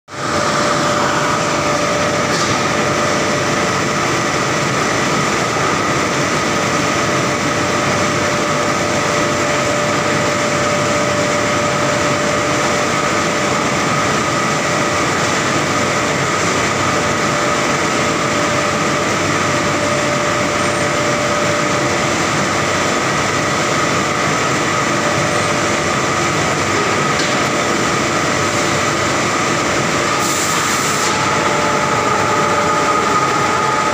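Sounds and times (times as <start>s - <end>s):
machine whining tones: 27.9s - 33.9s.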